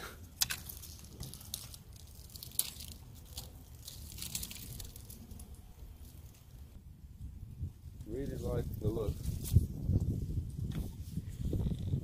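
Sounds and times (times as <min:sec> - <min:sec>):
close rustling and crackling: 0:00.2 - 0:06.8
low wind rumble on microphone: 0:03.6 - 0:12.0.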